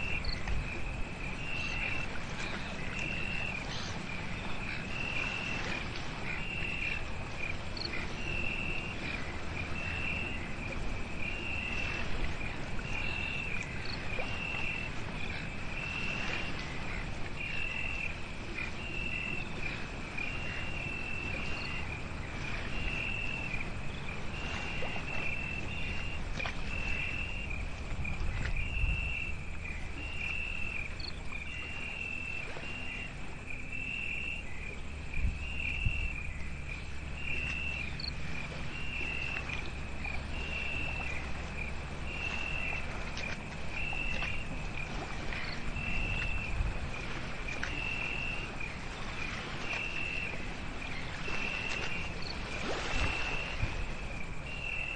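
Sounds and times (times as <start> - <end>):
crickets chirping: 0.0 - 54.9.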